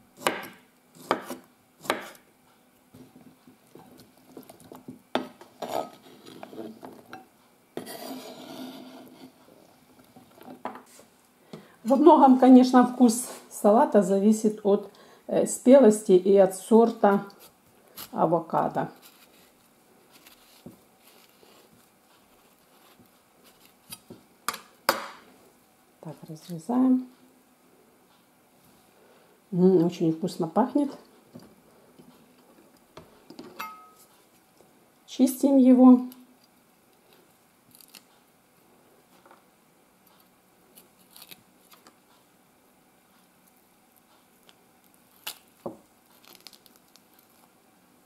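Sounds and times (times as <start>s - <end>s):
knife scraping avocado skin: 7.8s - 9.4s, 17.2s - 24.1s, 40.2s - 41.9s.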